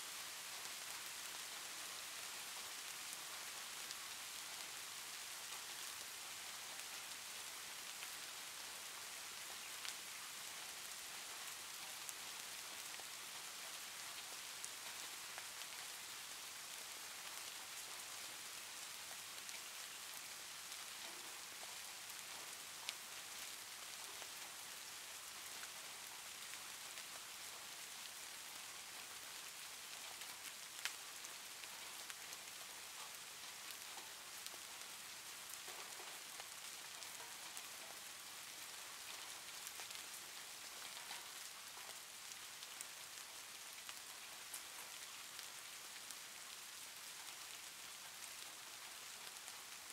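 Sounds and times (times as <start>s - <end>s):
steady hiss: 0.0s - 49.9s.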